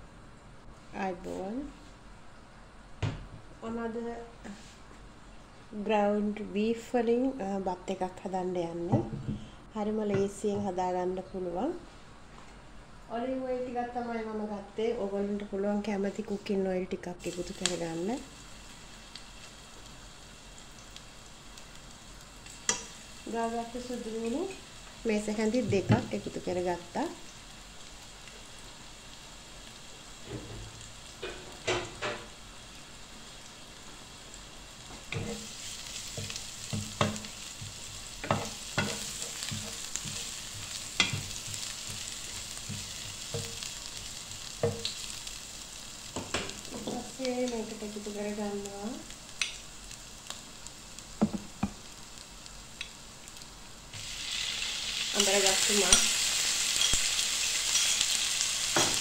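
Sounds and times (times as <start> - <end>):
garlic sizzling in oil: 14.2 - 59.0
meat sizzling in a hot pan: 15.8 - 59.0.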